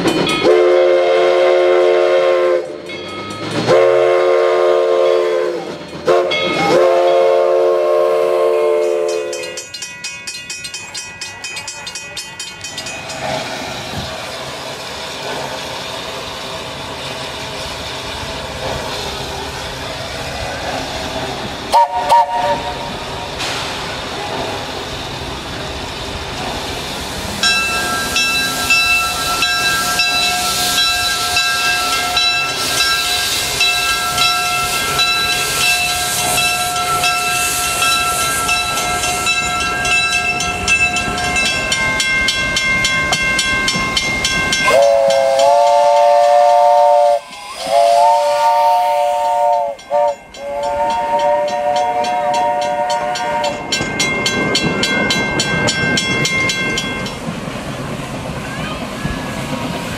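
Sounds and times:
steam locomotive hissing: 0:00.0 - 0:59.9
steam whistle: 0:00.4 - 0:02.8, 0:03.7 - 0:09.6, 0:21.7 - 0:23.0, 0:44.6 - 0:53.7.

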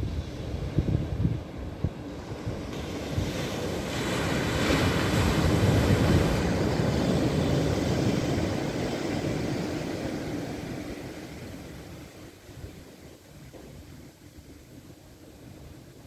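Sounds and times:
ocean wave breaking on sand: 0:00.0 - 0:14.5.

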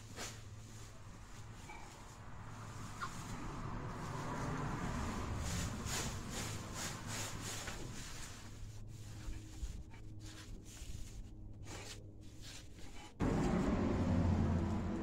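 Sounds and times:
sack of plants rustling: 0:00.0 - 0:11.2.

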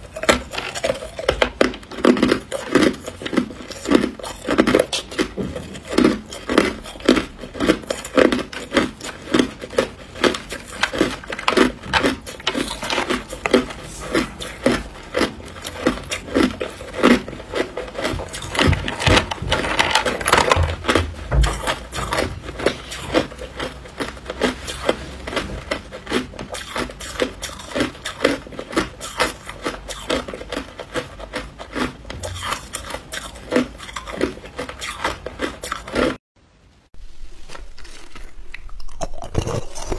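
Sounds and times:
ice being chewed: 0:00.0 - 0:36.2, 0:37.4 - 0:39.9
ice chunks scraping in plastic tub: 0:00.0 - 0:36.2.

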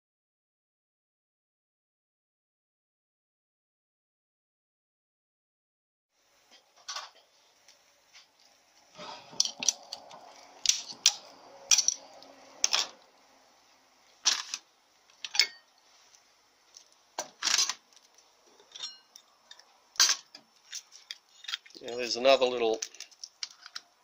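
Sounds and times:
metal parts clinking on metal tray: 0:10.6 - 0:12.0, 0:12.6 - 0:12.9, 0:14.2 - 0:14.6, 0:15.2 - 0:15.7, 0:17.3 - 0:17.8, 0:18.6 - 0:22.1.

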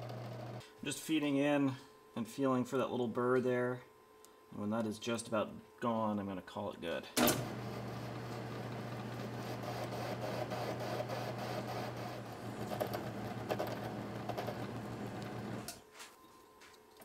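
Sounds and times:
lathe motor hum: 0:07.4 - 0:15.7
lathe cutting metal: 0:07.5 - 0:15.7.

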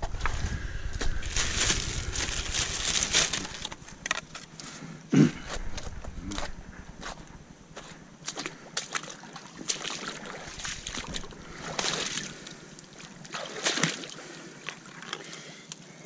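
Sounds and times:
water splashing and sloshing: 0:05.7 - 0:15.6.

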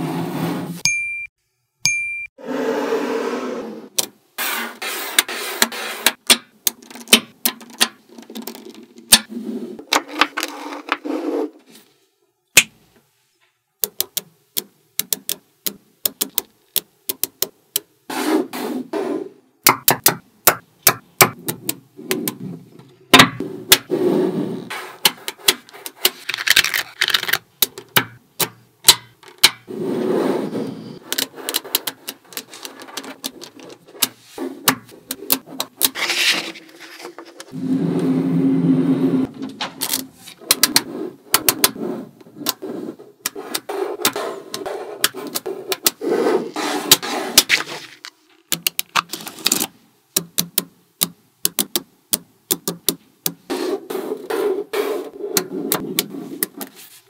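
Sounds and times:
magnetic balls clicking together: 0:13.8 - 0:17.9, 0:48.5 - 0:49.1, 0:50.1 - 0:53.5.

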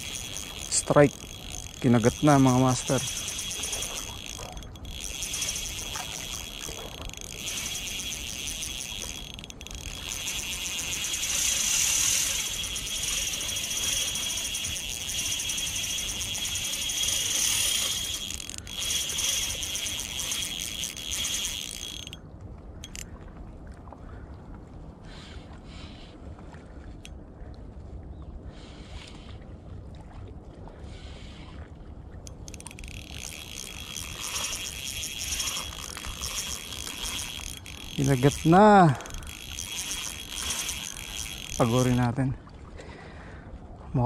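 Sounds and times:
fishing reel drag buzzing: 0:00.0 - 0:22.2, 0:22.8 - 0:23.0, 0:32.2 - 0:42.4.

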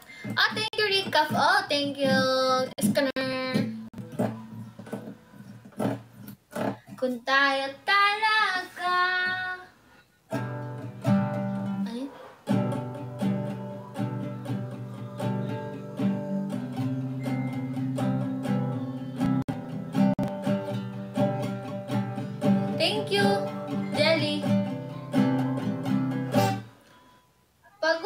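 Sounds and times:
acoustic guitar strumming chords: 0:00.1 - 0:07.0, 0:10.3 - 0:11.8, 0:12.5 - 0:27.3
woman singing: 0:00.2 - 0:03.8, 0:07.3 - 0:09.7, 0:22.7 - 0:24.6.

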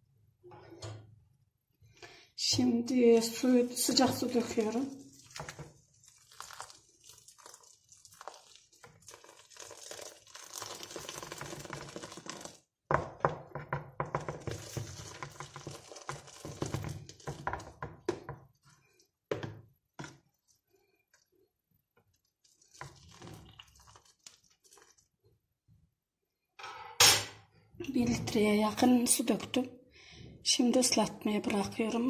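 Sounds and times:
spoon stirring and scraping bowl: 0:03.2 - 0:12.4, 0:14.1 - 0:19.0
water pouring from a kettle: 0:03.2 - 0:12.7, 0:14.4 - 0:17.8, 0:22.1 - 0:25.4.

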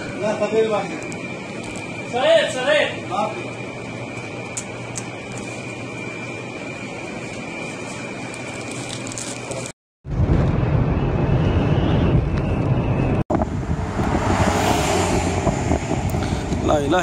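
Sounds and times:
wind blowing on microphone: 0:10.1 - 0:17.0
wind and road noise inside car: 0:11.5 - 0:17.0
wind hiss with faint high tone: 0:13.3 - 0:17.0.

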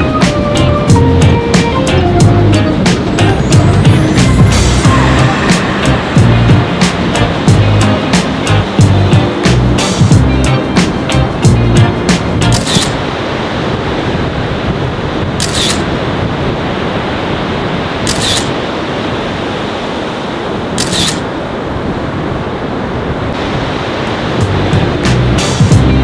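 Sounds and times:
surf breaking: 0:00.0 - 0:26.0
camera shutter firing: 0:12.5 - 0:13.0, 0:15.4 - 0:15.9, 0:18.1 - 0:18.5, 0:20.8 - 0:21.3.

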